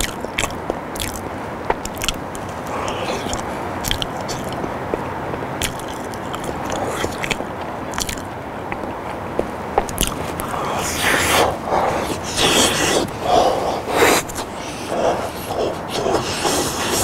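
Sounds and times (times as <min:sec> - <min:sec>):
wet lip smacks: 0:00.0 - 0:08.3, 0:09.8 - 0:17.0
man chewing food: 0:00.0 - 0:17.0
steady hiss: 0:00.2 - 0:05.1, 0:09.2 - 0:17.0.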